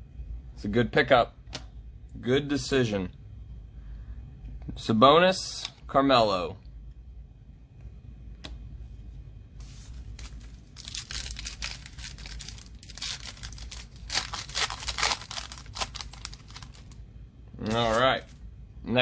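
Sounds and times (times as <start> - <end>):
foil wrapper crinkling and tearing: 10.1 - 17.0.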